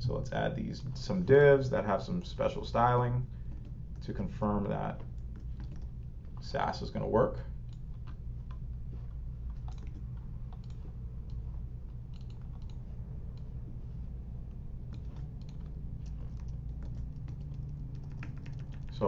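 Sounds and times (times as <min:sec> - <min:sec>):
steady low hum: 0:00.0 - 0:19.0
typing on keyboard: 0:05.2 - 0:05.9, 0:09.5 - 0:11.4, 0:12.1 - 0:12.8, 0:14.9 - 0:19.0.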